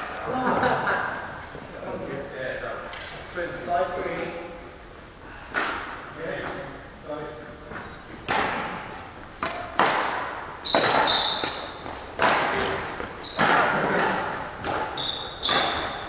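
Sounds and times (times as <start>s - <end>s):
rackets smacking shuttlecock: 8.2s - 16.0s
court shoes squeaking on floor: 10.6s - 16.0s.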